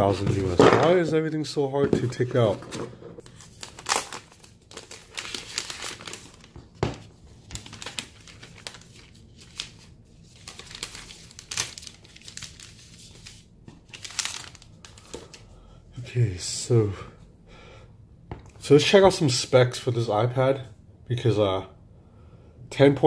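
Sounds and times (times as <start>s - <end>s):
plastic wrap crinkling: 3.2s - 15.4s.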